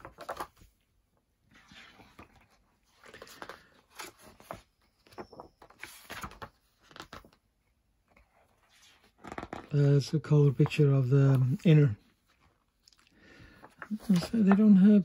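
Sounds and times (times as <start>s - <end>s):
paper rustling: 0.0s - 0.8s, 1.4s - 15.0s.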